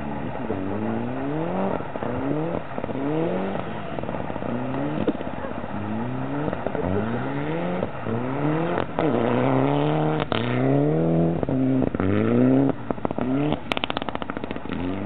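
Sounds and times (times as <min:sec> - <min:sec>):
rally car engine revving: 0:00.0 - 0:15.0
short sharp cracks: 0:13.5 - 0:15.0.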